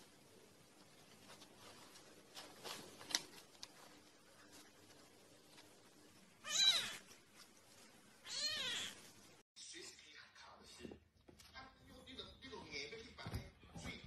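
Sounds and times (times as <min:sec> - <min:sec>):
kitten meowing: 0:06.4 - 0:07.0, 0:08.2 - 0:09.0.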